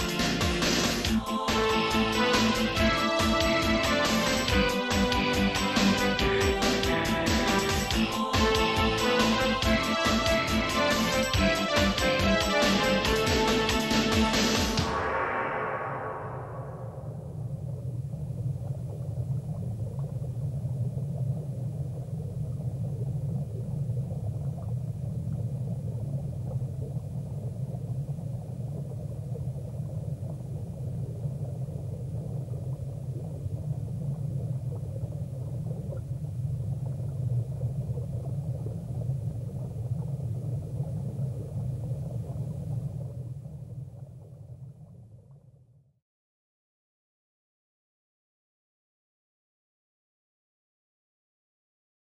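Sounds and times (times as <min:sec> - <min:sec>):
low rumble: 0:14.0 - 0:45.8.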